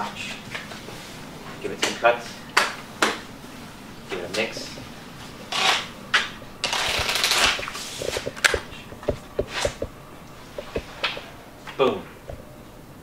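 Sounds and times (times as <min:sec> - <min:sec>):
playing cards shuffling: 0:05.5 - 0:09.9.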